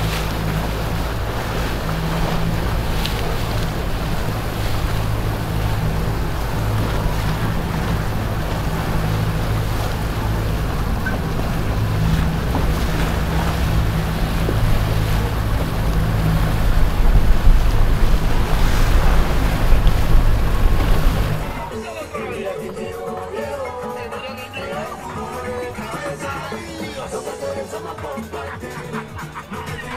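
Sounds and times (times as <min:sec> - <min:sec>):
wind buffeting microphone: 0:00.0 - 0:21.7
boat engine running: 0:00.0 - 0:29.9
water rushing: 0:00.0 - 0:29.9.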